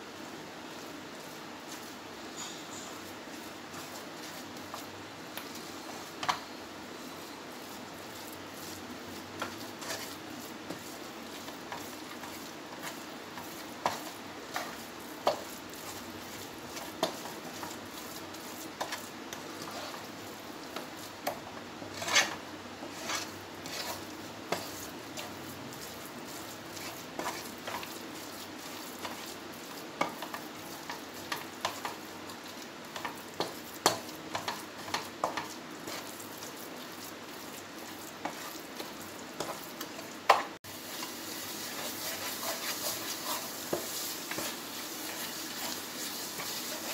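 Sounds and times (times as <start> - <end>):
low steady sizzle: 0.0 - 46.9
wooden spatula scraping pan: 5.5 - 20.1, 20.7 - 40.2, 40.8 - 46.9
spatula tapping pan: 9.3 - 19.9, 20.6 - 29.4, 30.0 - 36.5, 37.9 - 46.9.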